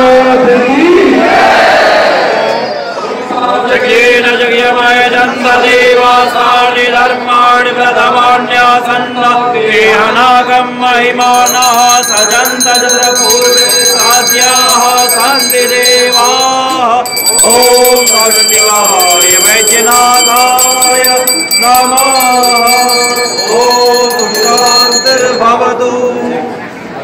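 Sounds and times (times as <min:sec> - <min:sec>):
bells ringing: 0:11.2 - 0:26.4.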